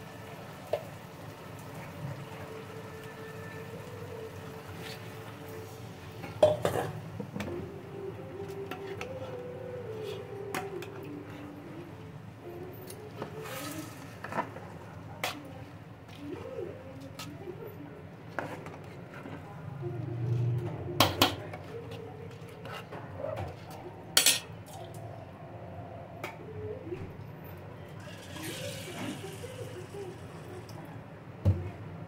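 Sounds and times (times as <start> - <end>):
ladle clinking against pot: 6.3 - 7.0.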